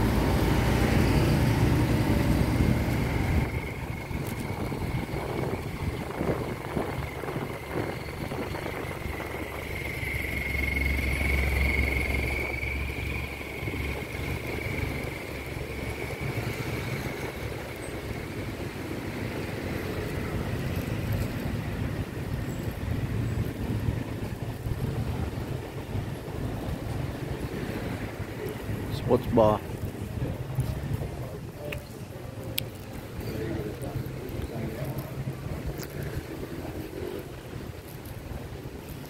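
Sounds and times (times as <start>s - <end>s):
vehicle passing loudly: 0.0s - 21.2s
cars and motorbikes passing: 0.0s - 39.0s.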